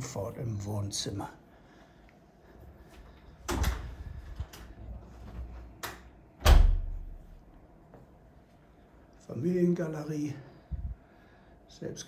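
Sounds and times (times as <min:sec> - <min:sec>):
door shutting with thuds: 0:03.4 - 0:04.6, 0:06.4 - 0:07.1.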